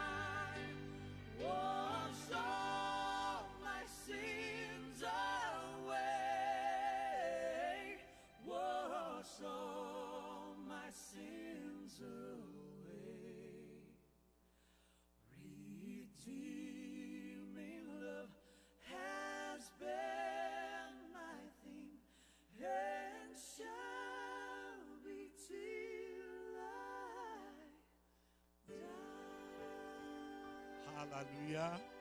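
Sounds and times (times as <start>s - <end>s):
unaccompanied worship singing: 0.0s - 14.0s, 15.3s - 27.9s, 28.7s - 32.0s
singer breathing: 14.4s - 15.1s, 22.0s - 22.5s, 28.1s - 28.6s.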